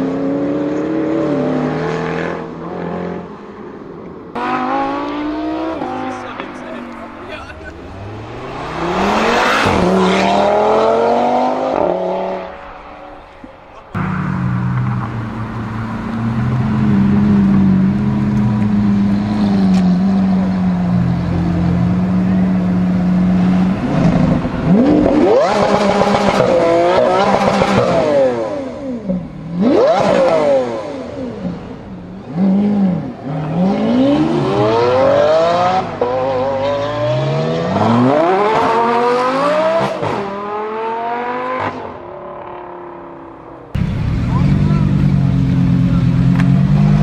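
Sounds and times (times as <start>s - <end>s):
sports car engine revving: 4.3s - 47.0s
low engine note: 13.1s - 25.0s, 43.7s - 47.0s.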